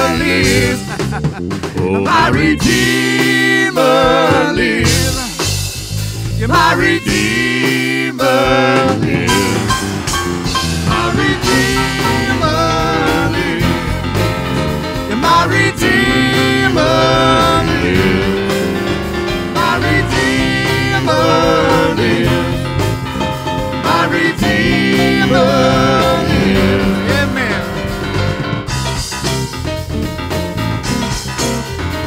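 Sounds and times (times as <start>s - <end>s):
instrumental accompaniment: 0.0s - 32.0s
singers with vibrato: 1.6s - 5.4s, 6.3s - 9.8s, 10.8s - 13.9s.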